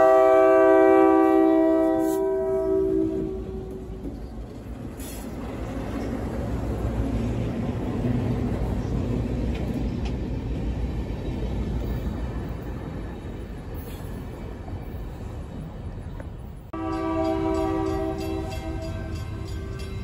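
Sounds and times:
diesel locomotive engines droning: 0:00.0 - 0:20.0
wheel and rail noise: 0:00.0 - 0:20.0.

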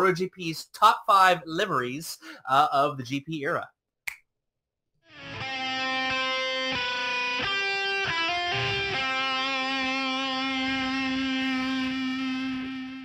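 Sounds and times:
picked guitar notes: 0:05.1 - 0:13.0.

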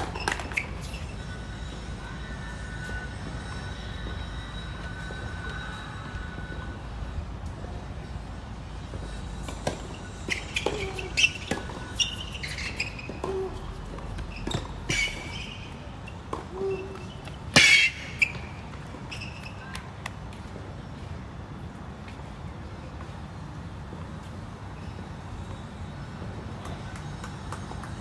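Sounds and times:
shoe squeaks: 0:00.0 - 0:06.4, 0:09.1 - 0:19.9
racket striking tennis ball: 0:17.5 - 0:18.3.

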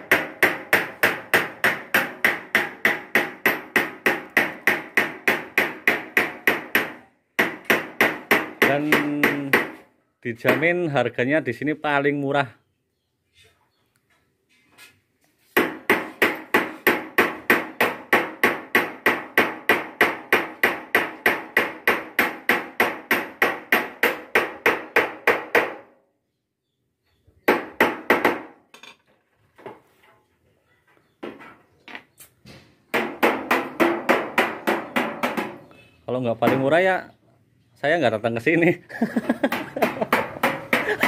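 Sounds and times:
hammer striking sheet metal: 0:33.0 - 0:35.6.

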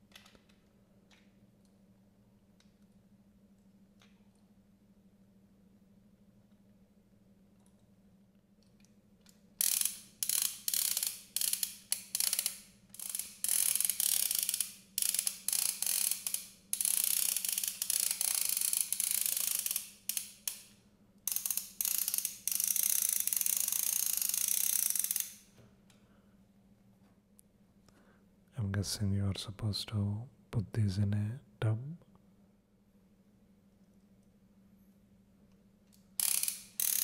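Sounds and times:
toy fishing reel ratcheting: 0:09.6 - 0:20.7, 0:21.3 - 0:25.4, 0:36.2 - 0:37.0.

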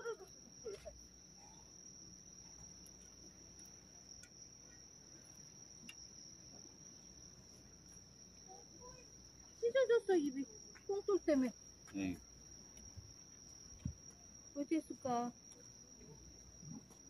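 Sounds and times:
crickets trilling: 0:00.0 - 0:17.0
faint ticks: 0:02.4 - 0:04.8, 0:05.8 - 0:06.1.

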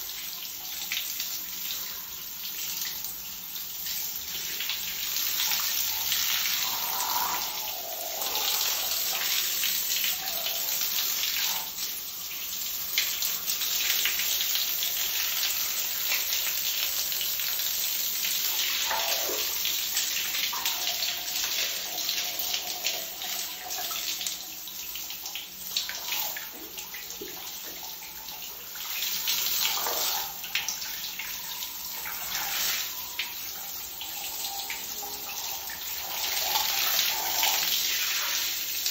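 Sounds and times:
shower spray on tiled floor: 0:32.0 - 0:33.0.

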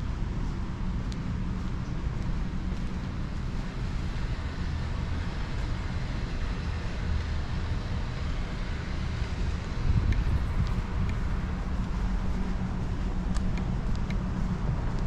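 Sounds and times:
distant city traffic rumble: 0:00.0 - 0:15.0.

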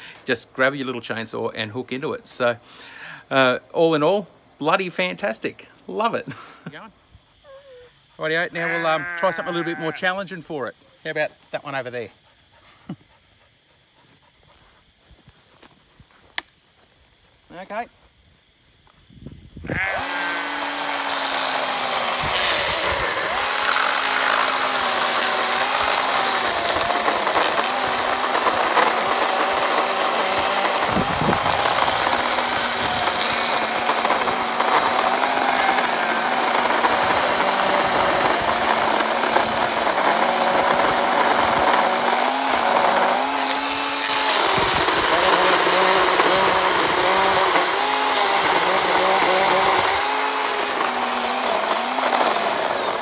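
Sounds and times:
electric chainsaw cutting a log: 0:08.2 - 0:10.1, 0:19.7 - 0:53.0.

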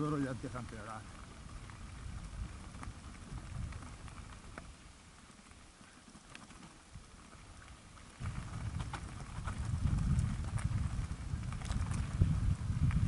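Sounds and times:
wind rumble on microphone: 0:00.0 - 0:05.0, 0:06.9 - 0:13.0
bike clicks and rattles: 0:00.0 - 0:13.0
tyres crunching over gravel: 0:00.0 - 0:13.0.

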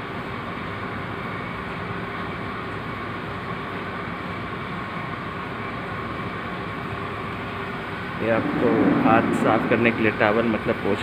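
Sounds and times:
air cooler fan rushing: 0:08.0 - 0:11.0
faint steady whine: 0:08.0 - 0:11.0.

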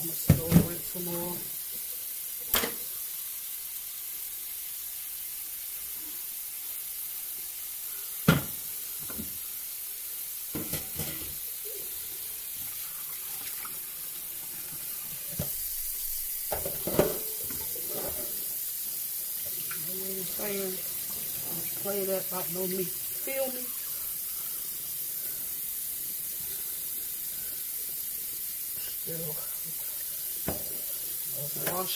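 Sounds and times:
pots knocking and clanking: 0:00.2 - 0:00.9, 0:02.4 - 0:02.9, 0:08.2 - 0:09.4, 0:10.5 - 0:11.5, 0:15.2 - 0:18.6, 0:30.4 - 0:31.9
tap running into sink: 0:00.3 - 0:00.8, 0:08.2 - 0:09.4, 0:10.5 - 0:11.4, 0:16.4 - 0:18.4, 0:30.4 - 0:30.8, 0:31.5 - 0:31.9.

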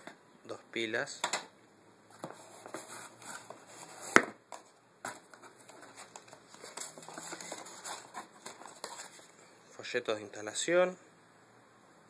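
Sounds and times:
cardboard scraping and rustling: 0:02.2 - 0:09.4.

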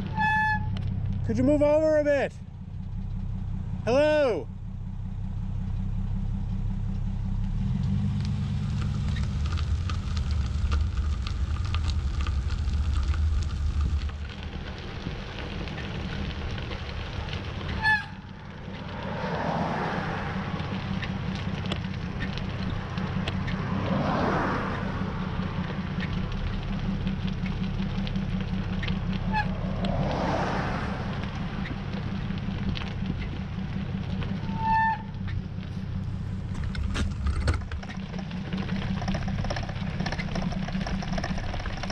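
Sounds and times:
brief high squeaks: 0:00.0 - 0:00.8, 0:34.4 - 0:35.3
engines idling: 0:00.0 - 0:41.9.

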